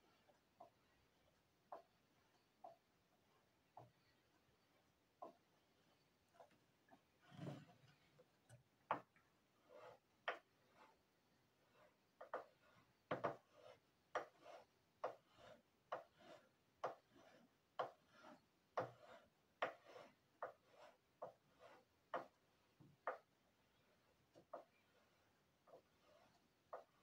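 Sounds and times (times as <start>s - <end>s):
metal scraper rasping on wax: 9.0s - 27.0s.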